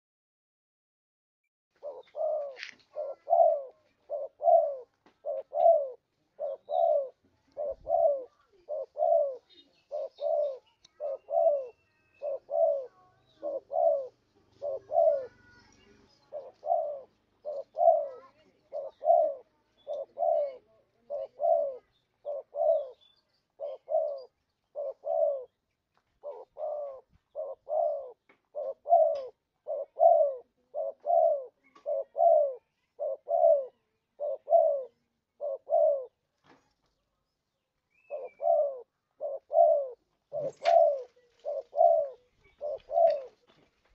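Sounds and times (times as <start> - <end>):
dove cooing: 1.8 - 25.6, 26.2 - 36.2, 38.0 - 43.6.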